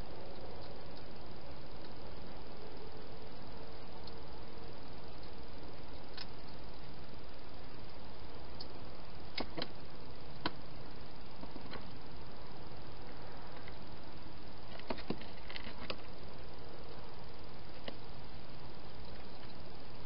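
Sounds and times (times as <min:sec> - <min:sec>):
steady hiss: 0:00.0 - 0:20.0
faint clicks and ticks: 0:04.0 - 0:04.3, 0:05.1 - 0:06.8.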